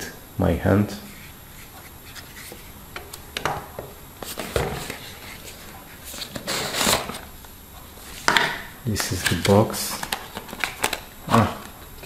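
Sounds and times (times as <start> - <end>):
packaging rustling: 1.2 - 7.4, 9.0 - 12.0.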